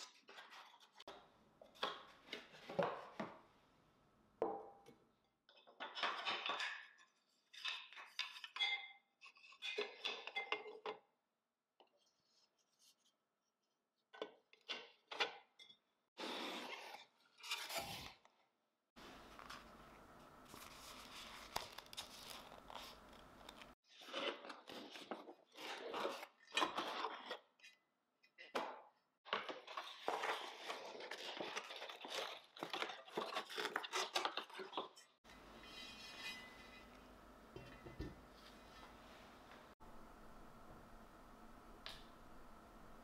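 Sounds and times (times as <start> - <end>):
cardboard packaging crinkling: 20.5 - 23.8.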